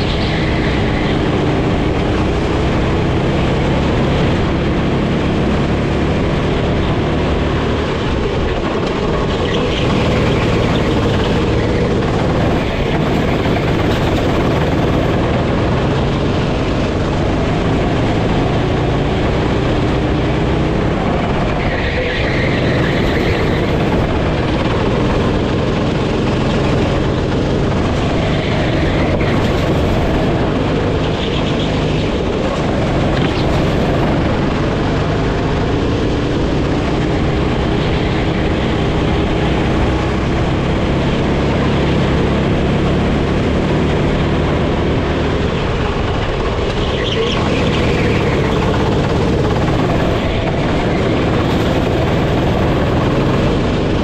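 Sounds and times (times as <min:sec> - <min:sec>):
kart engine revving: 0:00.0 - 0:54.0.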